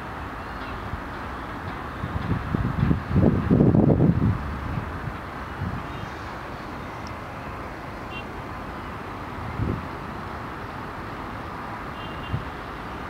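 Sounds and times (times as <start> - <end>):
distant rail yard rumble: 0.0 - 13.0
wind buffeting microphone: 1.7 - 7.3, 9.4 - 10.1.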